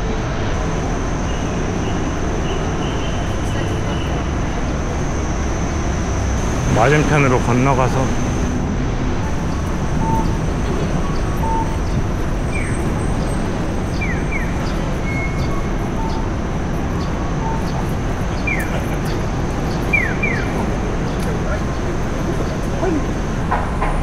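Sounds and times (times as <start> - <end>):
street traffic noise: 0.0 - 24.0
crossing signal chirping bird calls: 1.2 - 4.7, 9.3 - 23.1
short beeps: 11.1 - 11.9.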